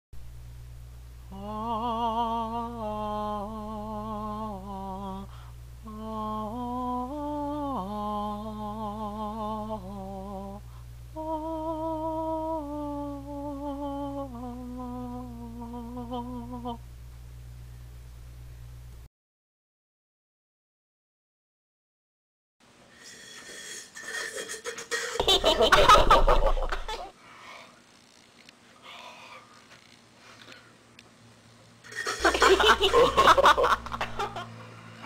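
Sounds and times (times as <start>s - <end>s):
low background hum: 0.2s - 19.1s, 22.6s - 35.0s
person humming a tune: 1.3s - 16.9s.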